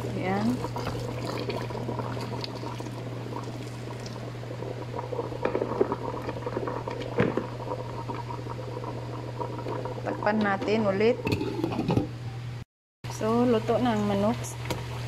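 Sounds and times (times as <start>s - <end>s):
broth boiling in metal pot: 0.0s - 12.1s, 13.1s - 15.0s
steady low hum: 0.0s - 15.0s
bubbles popping: 0.2s - 10.6s.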